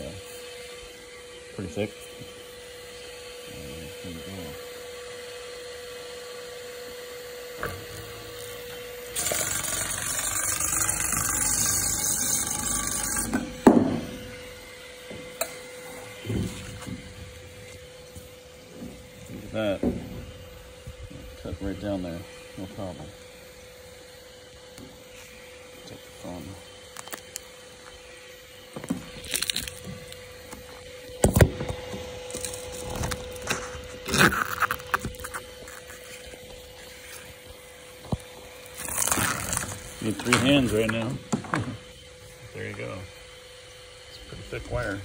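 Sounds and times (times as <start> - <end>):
wire stripping machine running: 7.4 - 14.3, 29.2 - 36.0, 38.6 - 41.1.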